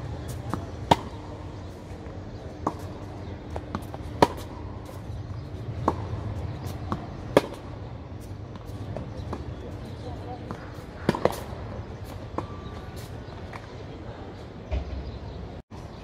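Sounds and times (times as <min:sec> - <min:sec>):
tennis ball bouncing: 0:00.3 - 0:01.4, 0:02.6 - 0:07.8, 0:10.4 - 0:12.6
tennis ball struck by racket: 0:00.4 - 0:01.4, 0:02.6 - 0:04.7, 0:05.8 - 0:07.7, 0:10.5 - 0:11.6.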